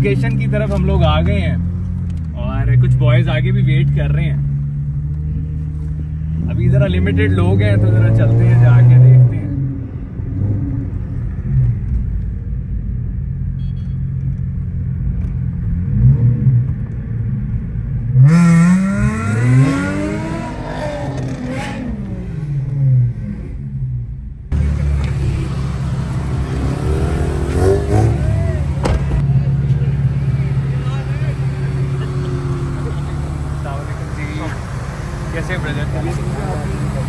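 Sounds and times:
car engines running: 0:00.0 - 0:37.0
engine hum: 0:00.0 - 0:37.0
engine revving: 0:06.2 - 0:09.7, 0:18.1 - 0:23.6, 0:24.5 - 0:37.0.

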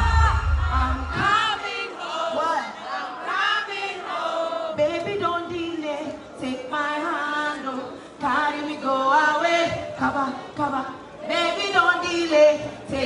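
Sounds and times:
backing music: 0:00.0 - 0:01.6
singer with crowd singing along: 0:00.0 - 0:13.0.

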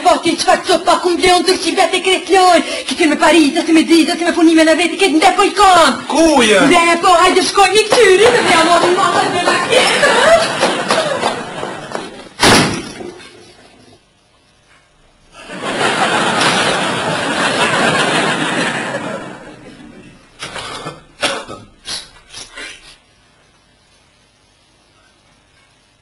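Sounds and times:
sharp knocks: 0:12.0 - 0:13.4
door slamming: 0:12.4 - 0:13.4.

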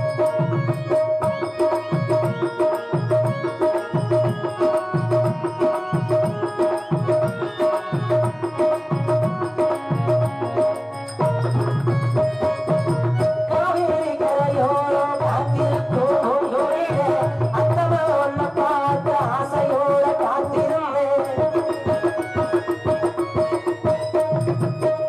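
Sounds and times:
tabla playing rhythm: 0:00.0 - 0:25.0
person singing: 0:13.5 - 0:22.5.

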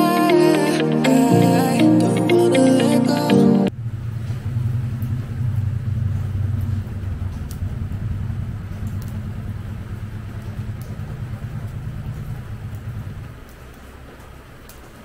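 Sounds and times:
hand fan air buffeting microphone: 0:03.7 - 0:15.0.

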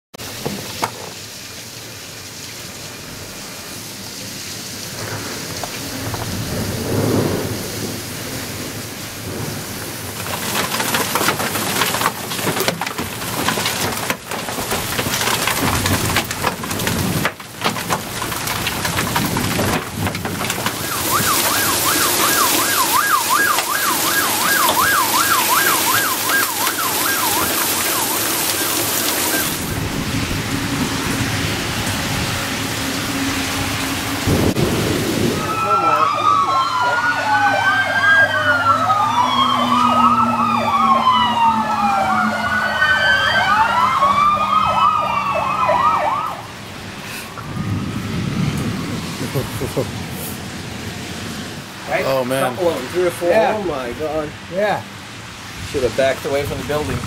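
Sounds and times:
heavy rain and hail: 0:00.2 - 0:57.0
thunder rumbling: 0:04.8 - 0:52.0, 0:55.6 - 0:57.0
warbling siren-like alarm: 0:20.5 - 0:49.5.

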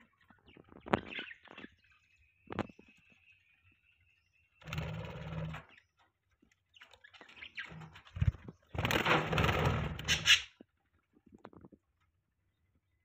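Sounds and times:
bird chirps: 0:00.0 - 0:06.0, 0:10.0 - 0:10.6
birds rustling and scuffling: 0:04.7 - 0:12.3.

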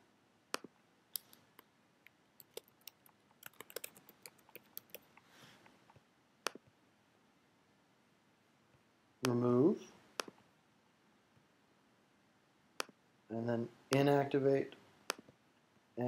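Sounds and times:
typing on computer keyboard: 0:02.4 - 0:05.1
mouse clicks: 0:02.4 - 0:05.2, 0:10.2 - 0:10.4, 0:12.8 - 0:13.0.

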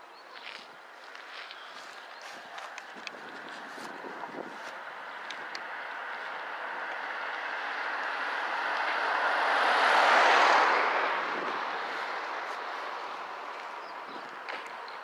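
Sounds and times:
car driving past: 0:05.7 - 0:13.9.

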